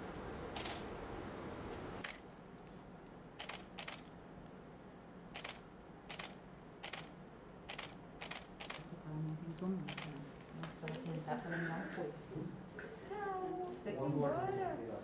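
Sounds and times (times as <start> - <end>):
faint room noise: 0.0 - 15.0
camera shutter clicking: 0.5 - 0.9, 3.4 - 4.1, 5.4 - 7.1, 7.7 - 8.9.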